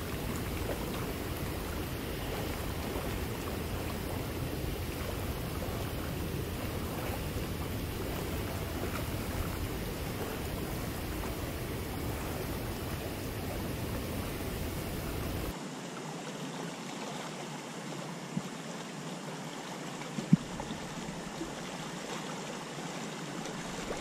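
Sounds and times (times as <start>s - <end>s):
wind rumbling on microphone: 0.0s - 15.5s.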